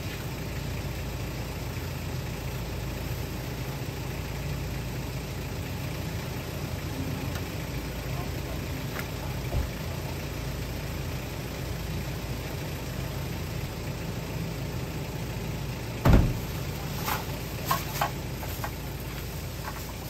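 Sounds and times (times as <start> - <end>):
low steady rumble: 0.0 - 20.0
car door slamming shut: 16.0 - 16.6.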